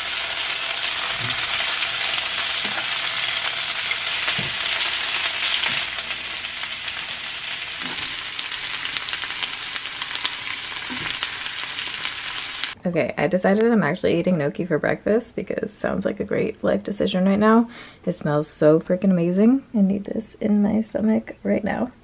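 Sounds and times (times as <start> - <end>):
food sizzling in a frying pan: 0.0 - 12.8.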